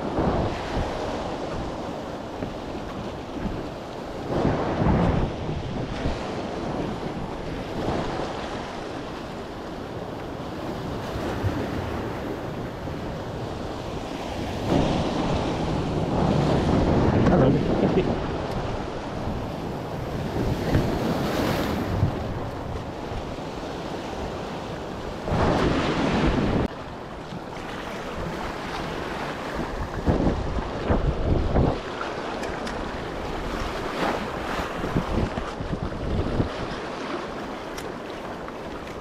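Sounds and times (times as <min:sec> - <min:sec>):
sea surf washing in: 0:00.0 - 0:39.0
wind buffeting microphone: 0:00.0 - 0:39.0.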